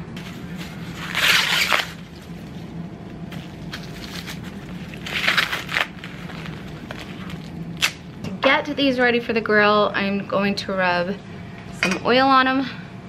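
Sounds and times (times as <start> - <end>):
steady low hum: 0.0 - 13.0
corn husk rustling and crinkling: 0.2 - 8.0.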